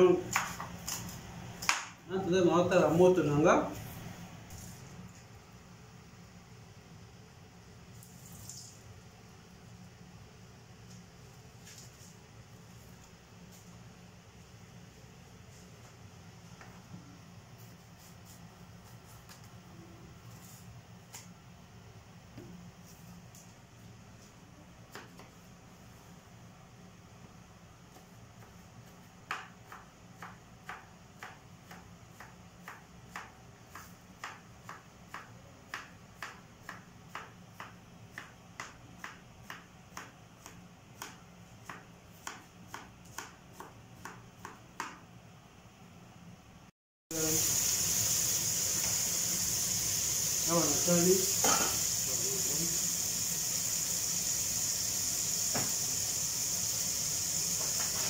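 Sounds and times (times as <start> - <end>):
knife chopping on cutting board: 0.2 - 1.9, 29.3 - 45.0
knife peeling vegetable: 17.5 - 19.6.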